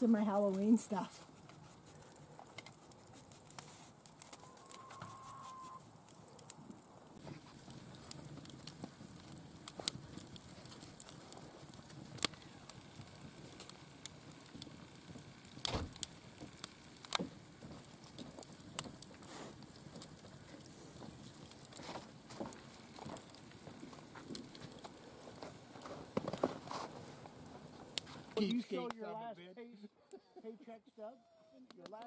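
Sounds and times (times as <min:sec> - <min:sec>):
wood fire crackling: 0:00.0 - 0:29.4, 0:30.1 - 0:32.0
sharp fire pops: 0:05.9 - 0:29.0.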